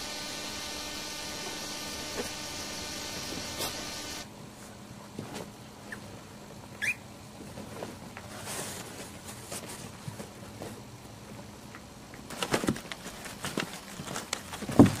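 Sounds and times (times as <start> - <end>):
electrical hum: 0.0 - 4.4.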